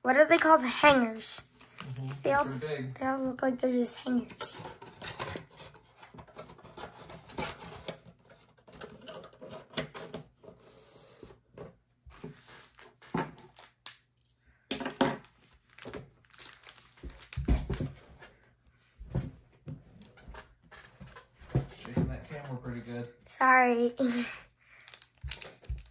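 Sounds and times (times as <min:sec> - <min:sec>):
wrappers rustling and scraping: 0:12.1 - 0:14.4, 0:15.2 - 0:19.0.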